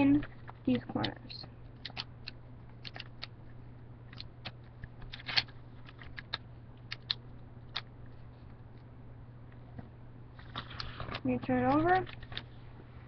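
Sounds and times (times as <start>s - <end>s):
steady low hum: 0.0s - 13.0s
paper crackling as folded: 10.4s - 12.5s.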